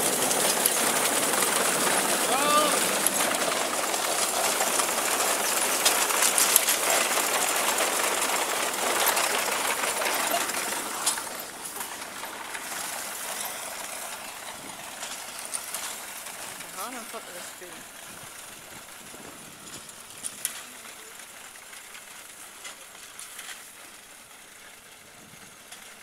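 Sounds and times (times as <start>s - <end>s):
reaper-binder metallic clatter: 0.0s - 18.4s.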